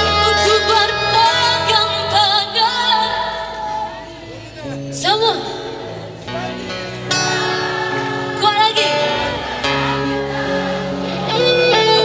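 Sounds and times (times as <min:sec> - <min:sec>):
guitar bending sustained notes: 0:00.0 - 0:12.0
live band playing: 0:00.0 - 0:12.0.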